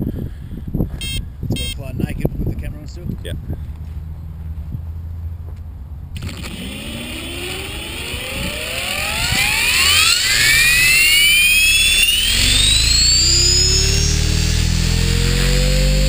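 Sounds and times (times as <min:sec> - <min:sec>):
low rumble: 0:00.8 - 0:16.0
electric motor whine rising: 0:06.2 - 0:16.0.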